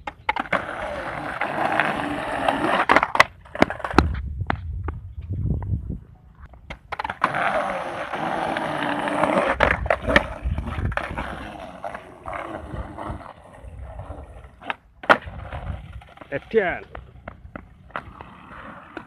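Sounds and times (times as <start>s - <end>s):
skateboard clacks: 0.0s - 5.0s, 6.6s - 12.1s, 16.0s - 19.0s
skateboard wheels rolling on concrete: 0.0s - 19.0s.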